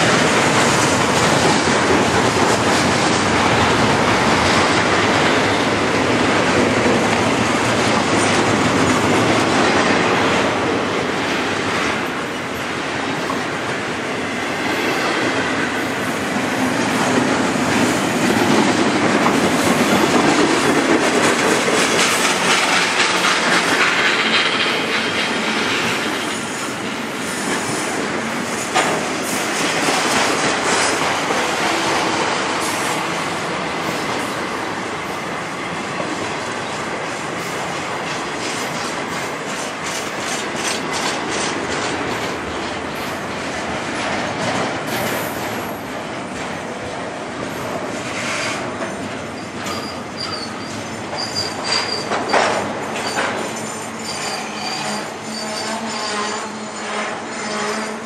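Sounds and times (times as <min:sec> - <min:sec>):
steel wheels clattering: 0:16.5 - 0:32.9
high wheel squeal: 0:48.2 - 0:58.0.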